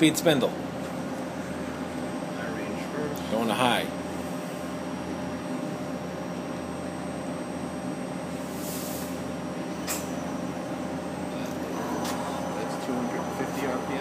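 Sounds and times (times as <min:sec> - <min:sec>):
lathe humming: 0:09.7 - 0:14.0.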